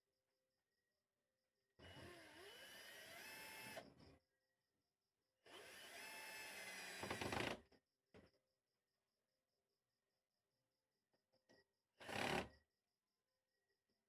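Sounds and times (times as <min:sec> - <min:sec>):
cordless drill whining into wood: 0:01.8 - 0:03.9, 0:05.5 - 0:07.6, 0:12.0 - 0:12.6.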